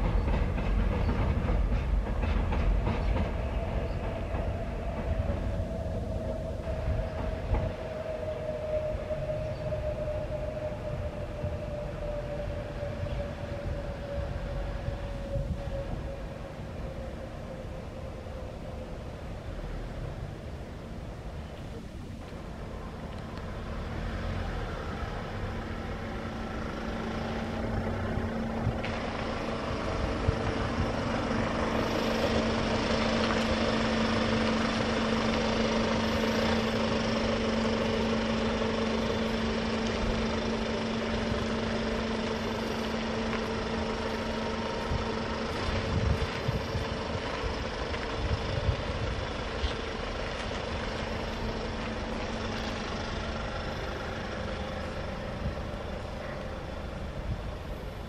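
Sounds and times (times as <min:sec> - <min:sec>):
train wheel clacks: 0:00.0 - 0:08.0
subway train rumbling: 0:00.0 - 0:58.0.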